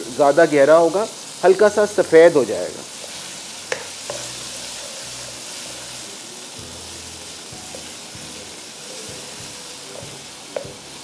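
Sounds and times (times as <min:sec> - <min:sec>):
beef sizzling in hot oil: 0:00.0 - 0:11.0.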